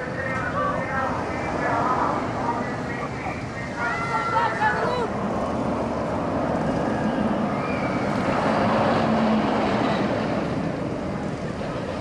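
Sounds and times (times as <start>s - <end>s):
wind rushing over microphone: 4.5s - 12.0s.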